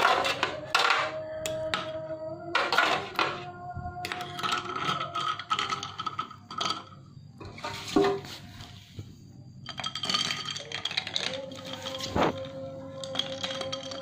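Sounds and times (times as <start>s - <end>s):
spoon clinking ice in a glass: 4.0s - 7.0s, 9.6s - 14.0s.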